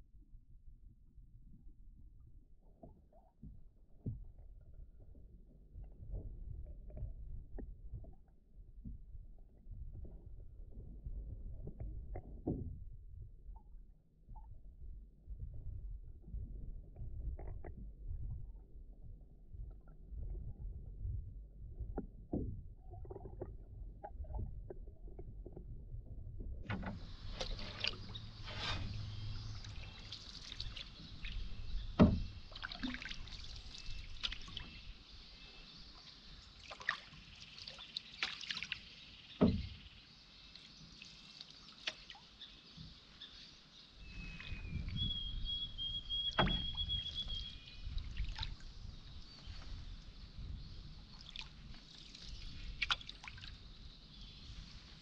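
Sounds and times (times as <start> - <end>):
water swishing and dripping: 2.0 - 39.9, 40.5 - 43.0, 44.2 - 55.0
paddle knocking against canoe: 26.6 - 30.0, 30.6 - 33.2, 39.4 - 39.9, 46.2 - 47.4.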